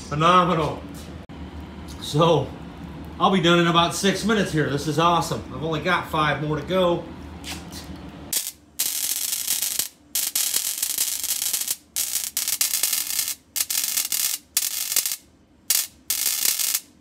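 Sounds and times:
spark discharge crackling: 0:08.3 - 0:17.0.

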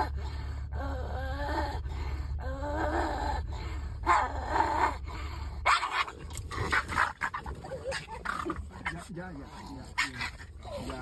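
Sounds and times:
dogs growling: 0:02.7 - 0:11.0
dogs snarling and barking: 0:02.8 - 0:11.0.

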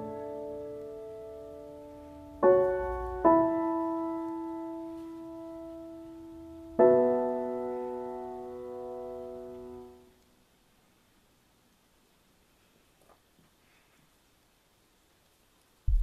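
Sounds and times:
piano chords ringing: 0:00.0 - 0:10.2.

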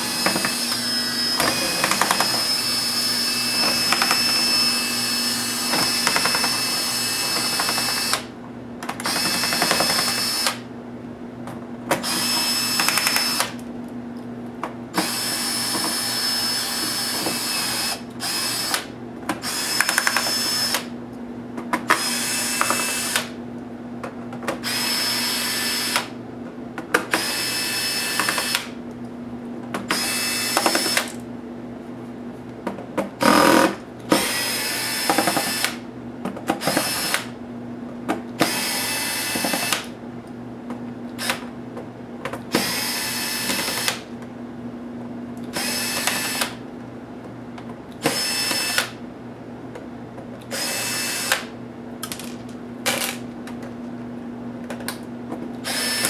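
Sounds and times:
electric screwdriver spinning: 0:55.7 - 0:56.0.

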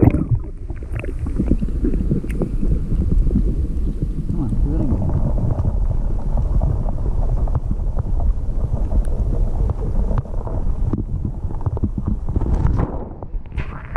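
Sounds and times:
underwater rumble: 0:00.0 - 0:13.9.

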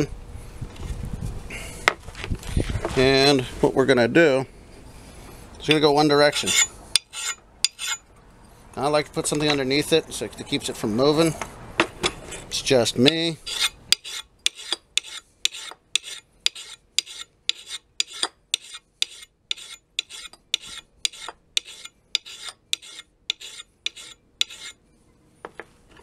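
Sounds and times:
axe scraping on sharpening stone: 0:06.3 - 0:08.0, 0:13.4 - 0:24.8.

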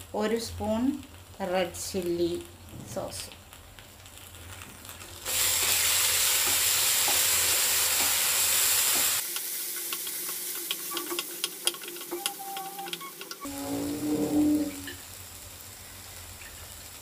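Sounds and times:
masala sizzling in hot oil: 0:00.0 - 0:17.0
wooden spatula scraping pan: 0:13.4 - 0:15.0.

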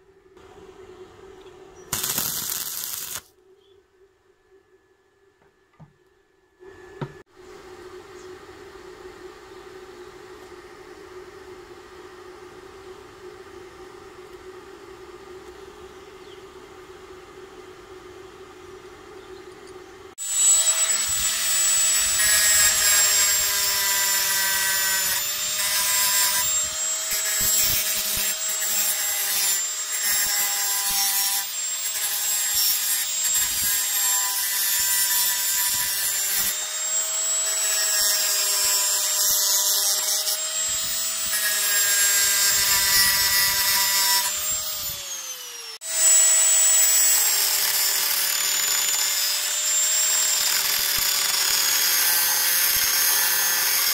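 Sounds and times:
angle grinder cutting steel: 0:01.9 - 0:03.3, 0:20.2 - 0:53.9.

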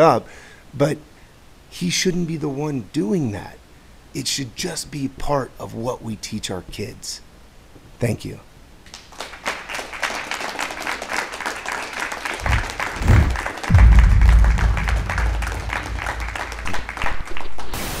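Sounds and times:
audience applauding: 0:08.9 - 0:17.7
outro music with deep bass: 0:12.5 - 0:17.0.

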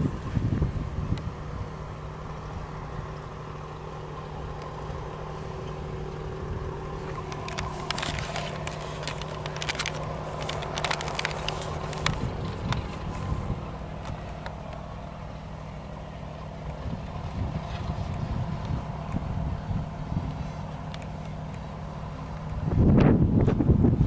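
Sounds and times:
diesel locomotive engine drone: 0:00.0 - 0:24.0
sharp clicks and crackles: 0:07.0 - 0:13.3, 0:20.9 - 0:21.7.

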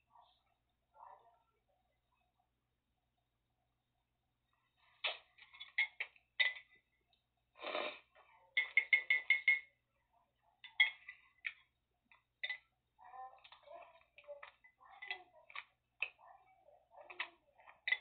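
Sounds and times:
metal spoon clinking in mug: 0:05.4 - 0:06.8, 0:08.5 - 0:09.8, 0:10.6 - 0:12.7, 0:13.3 - 0:18.0.

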